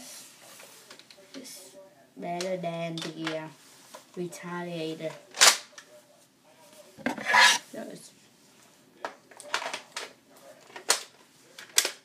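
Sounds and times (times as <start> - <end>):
plastic toy blaster clacks: 10.8 - 12.0.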